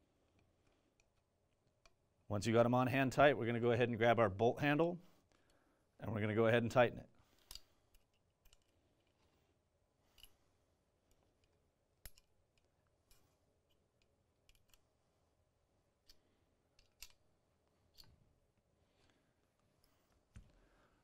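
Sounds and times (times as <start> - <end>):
small metal parts clicking: 7.4 - 9.2, 11.1 - 14.9, 16.8 - 17.2, 17.9 - 18.2.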